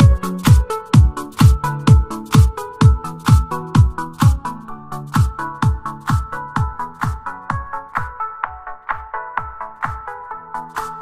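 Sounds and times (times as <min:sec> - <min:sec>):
electronic dance music: 0:00.0 - 0:11.0.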